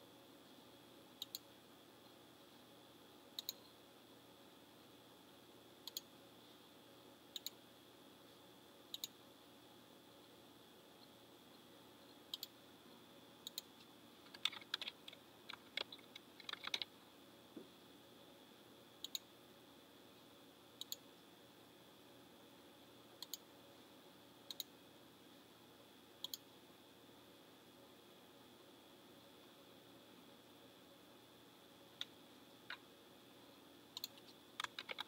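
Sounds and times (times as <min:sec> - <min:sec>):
faint electrical hum: 0:00.0 - 0:35.0
keyboard typing: 0:03.4 - 0:03.7, 0:13.4 - 0:16.9, 0:34.0 - 0:35.0.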